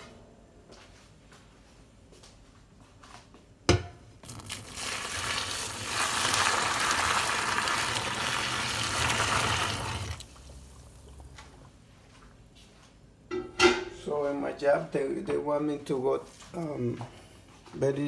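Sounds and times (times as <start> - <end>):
water pouring into a sink: 4.2 - 11.2.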